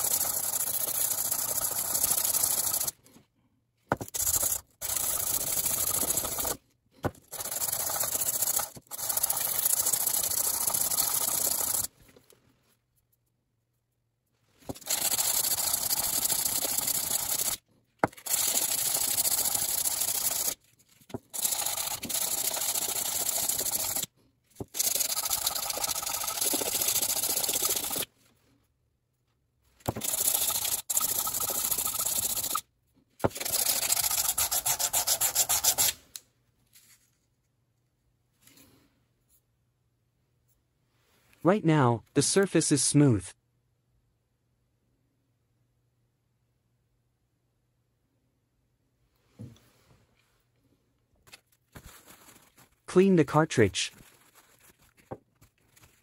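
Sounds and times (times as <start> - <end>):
metal rubbed on sandpaper: 4.0 - 6.6, 7.3 - 11.9, 14.7 - 17.6, 21.3 - 24.1, 29.9 - 32.6, 33.3 - 36.0.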